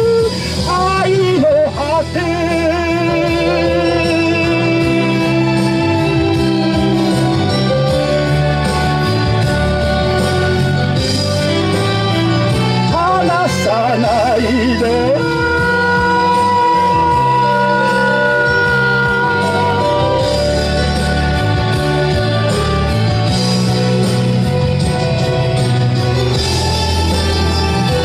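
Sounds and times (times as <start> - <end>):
person singing: 0.0 - 8.3, 12.9 - 22.9
karaoke backing track: 0.0 - 28.0.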